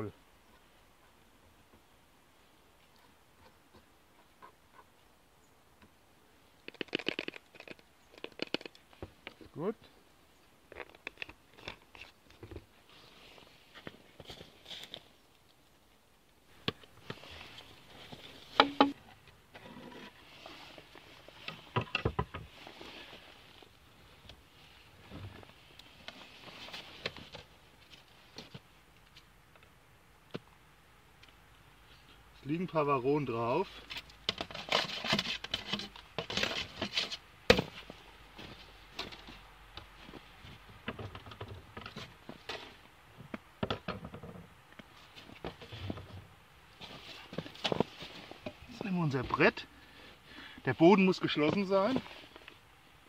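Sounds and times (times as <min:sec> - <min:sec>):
wood scraping: 0:16.6 - 0:23.8, 0:33.7 - 0:49.4
wooden knocks and clacks: 0:18.6 - 0:19.0, 0:21.5 - 0:22.5.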